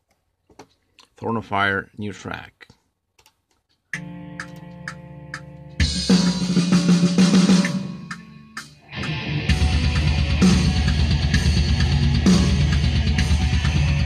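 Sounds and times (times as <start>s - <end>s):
metal music with drums: 5.8s - 14.0s.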